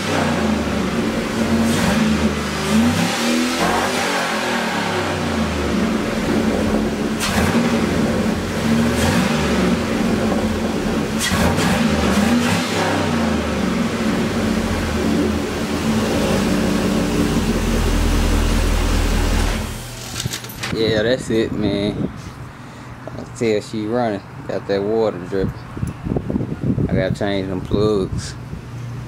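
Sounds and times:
car engine idling and revving: 0.0 - 20.0.

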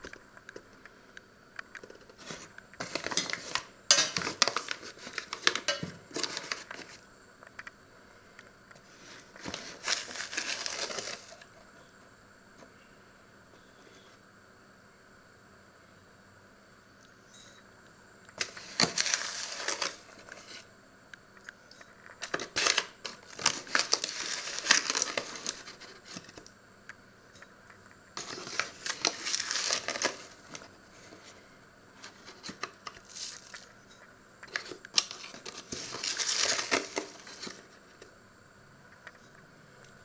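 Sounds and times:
paper bag crinkling: 1.8 - 7.0, 9.0 - 11.5, 18.4 - 20.6, 22.2 - 26.4, 28.2 - 31.4, 32.0 - 33.8, 34.5 - 38.0.

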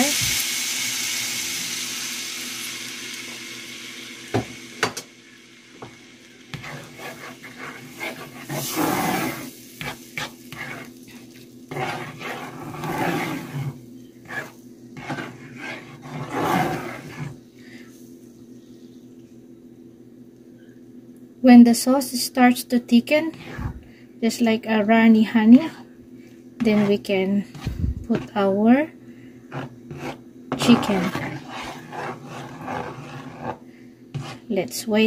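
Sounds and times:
sauce sizzling in a pan: 0.0 - 15.8
spatula stirring and scraping sauce: 6.5 - 17.5, 23.3 - 23.8, 26.6 - 28.5, 29.5 - 34.6.

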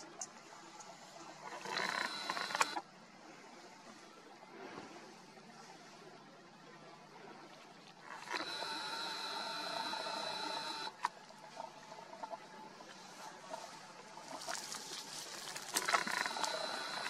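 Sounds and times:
faint clicks: 0.0 - 2.8
lens zoom motor whining: 1.5 - 2.8, 8.1 - 11.1, 15.8 - 17.0.

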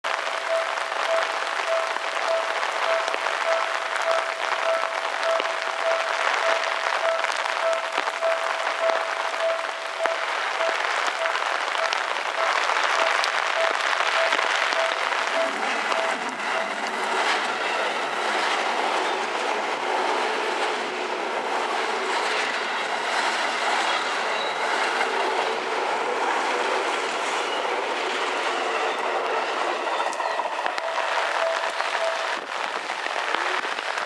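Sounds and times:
electric train rumbling: 0.0 - 34.0
heavy rain hissing: 0.1 - 17.6, 30.6 - 34.0
level crossing warning bell: 0.1 - 19.3, 27.4 - 32.5.

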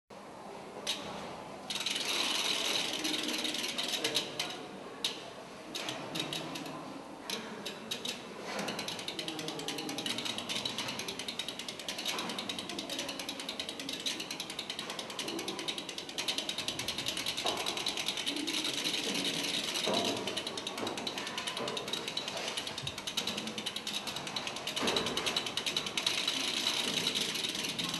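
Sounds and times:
mechanical clicking and ratcheting: 1.7 - 27.9.

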